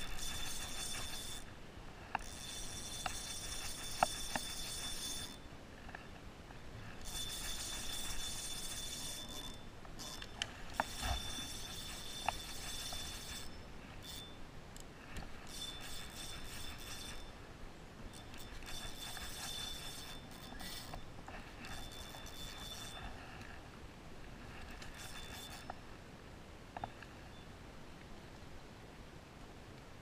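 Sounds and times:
fishing reel whirring: 0.0 - 1.5, 2.1 - 5.4, 7.0 - 14.4, 15.4 - 17.4, 18.2 - 23.2, 24.6 - 25.8.

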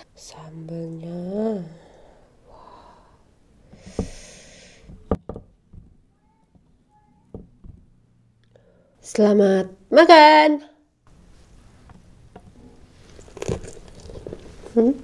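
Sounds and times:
fingers tearing food squishes: 13.0 - 14.8.

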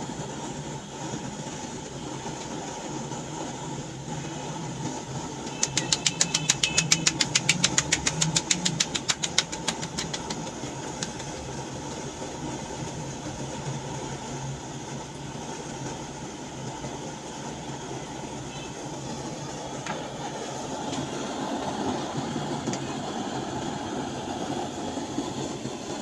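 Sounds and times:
hands slapping dough: 5.5 - 11.5.

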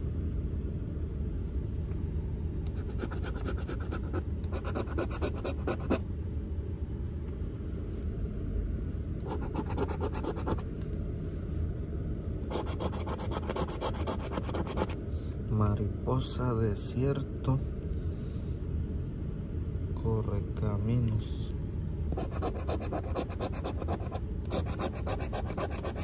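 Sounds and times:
steady low rumble: 0.0 - 26.0
coin scraping lottery ticket: 12.5 - 15.0, 22.2 - 26.0.

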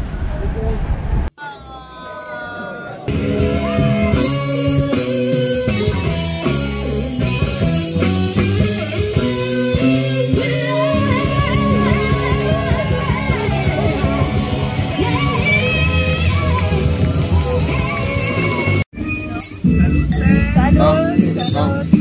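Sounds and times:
live band playing: 3.1 - 22.0
person singing: 9.7 - 18.8, 19.7 - 22.0.

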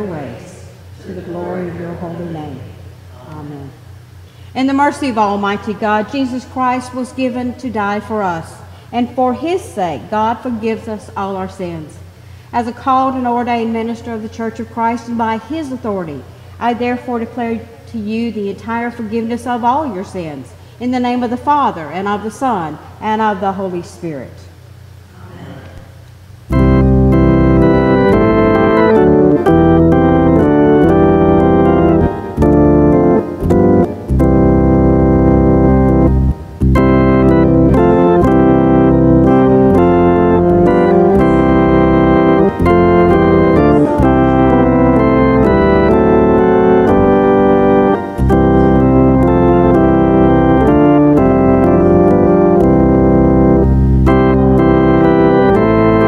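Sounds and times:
organ playing sustained chords: 0.0 - 2.6, 26.4 - 56.0.

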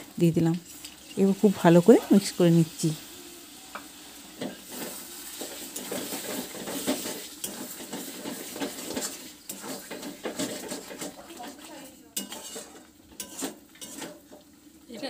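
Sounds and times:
gravy sizzling: 0.0 - 15.0
spatula scraping metal pan: 4.4 - 15.0.

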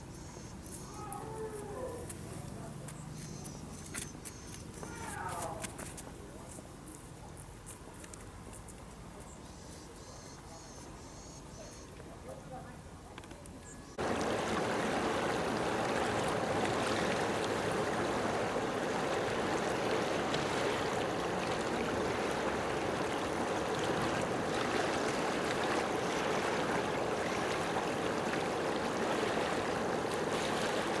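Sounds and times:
rushing water: 14.0 - 31.0.

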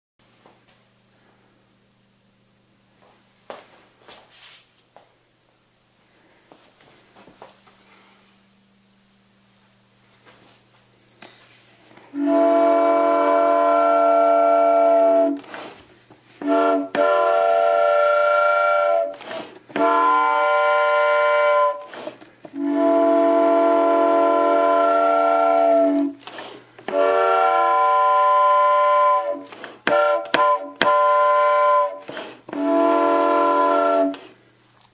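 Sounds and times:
toy train whistle blasts: 12.1 - 15.7, 16.4 - 34.4.

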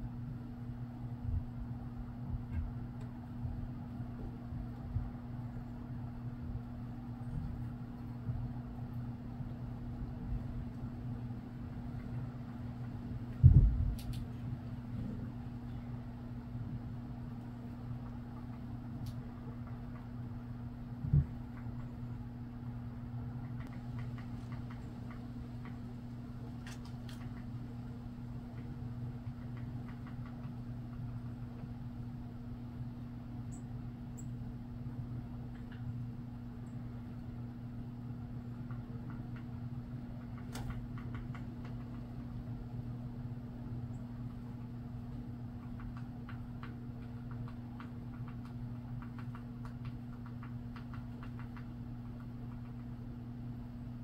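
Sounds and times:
low mechanical hum: 0.0 - 54.0
sharp clicks: 45.6 - 52.9.

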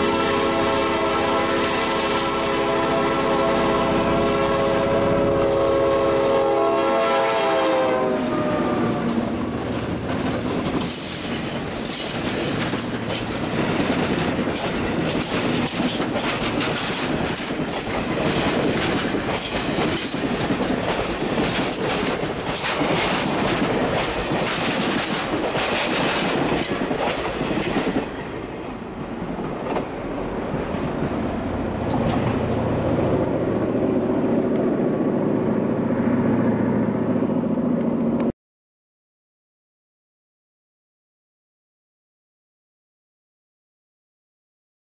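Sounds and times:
locomotive horn: 0.0 - 9.3
train passing: 0.0 - 38.3
wheels clicking over rail joints: 8.9 - 28.4.

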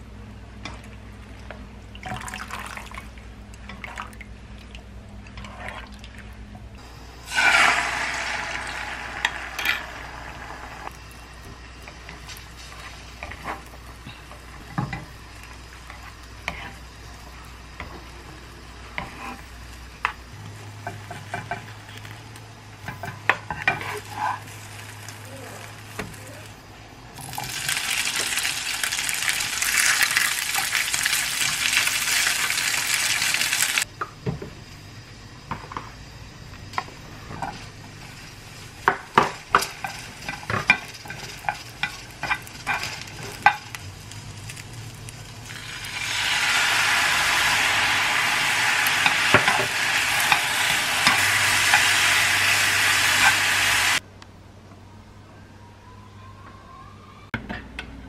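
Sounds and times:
food sizzling in oil: 7.2 - 10.9, 23.4 - 26.6, 27.2 - 33.9, 37.4 - 54.0.

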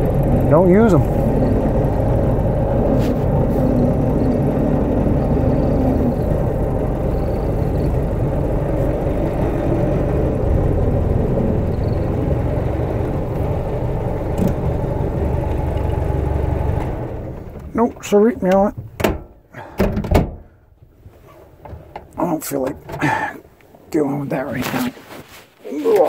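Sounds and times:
car engine running: 0.0 - 19.4.

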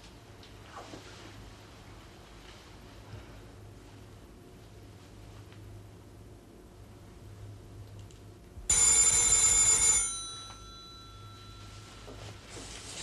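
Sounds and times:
telephone bell ringing: 8.7 - 12.4.

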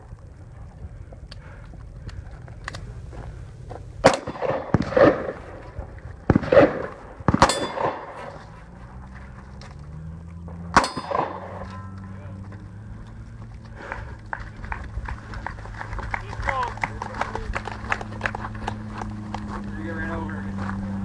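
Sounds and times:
handgun shots with echo: 4.0 - 5.4, 6.3 - 8.3, 10.7 - 11.7.

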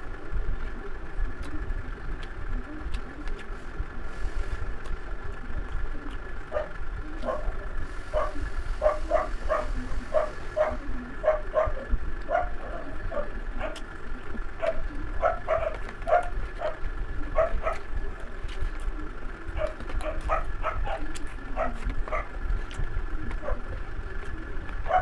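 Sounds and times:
low hum: 0.0 - 25.0
dog yipping: 6.5 - 7.5, 8.1 - 13.8, 14.6 - 17.9, 19.6 - 22.4.

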